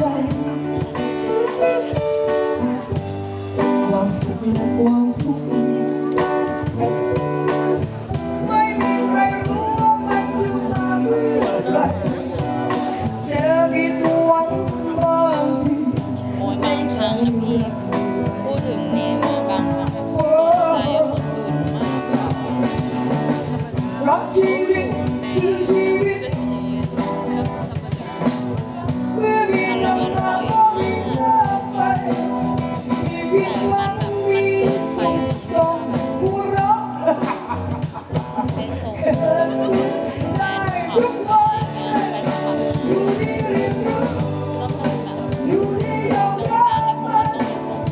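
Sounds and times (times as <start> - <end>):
drum kit: 0.0 - 47.9
live band music: 0.0 - 47.9
person singing: 0.0 - 47.9.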